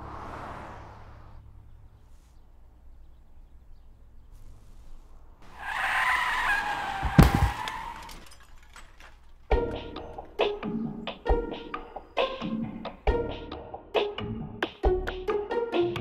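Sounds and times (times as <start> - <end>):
tires squealing in a skid: 0.0 - 1.4, 5.4 - 9.2
heavy thump: 7.0 - 7.7.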